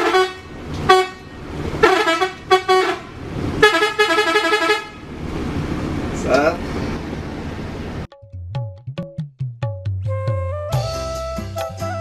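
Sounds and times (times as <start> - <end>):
multi-tone musical bus horn: 0.0 - 5.0, 10.4 - 12.0.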